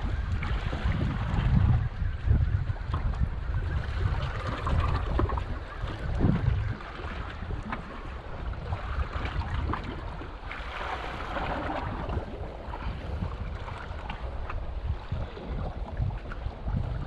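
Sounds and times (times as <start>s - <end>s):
water splashing against a boat hull: 0.0s - 17.0s
wind buffeting microphone: 0.0s - 17.0s.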